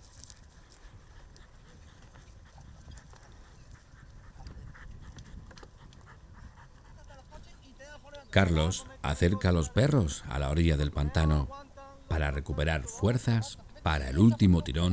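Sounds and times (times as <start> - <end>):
small ticks: 0.0 - 6.1.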